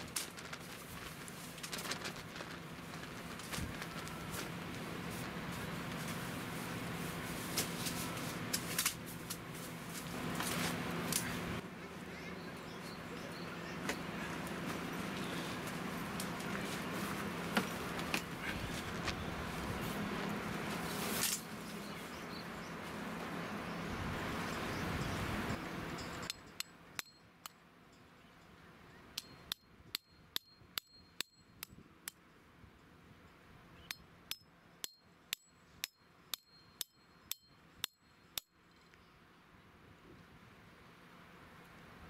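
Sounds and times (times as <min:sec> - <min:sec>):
hammer striking steel tent peg: 0:29.2 - 0:32.2, 0:33.8 - 0:38.6.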